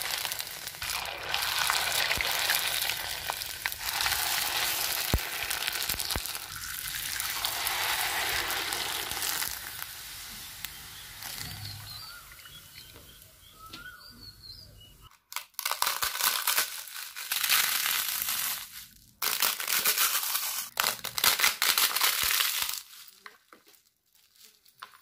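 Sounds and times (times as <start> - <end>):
papads crunching in hands: 0.0 - 10.0, 15.1 - 25.0.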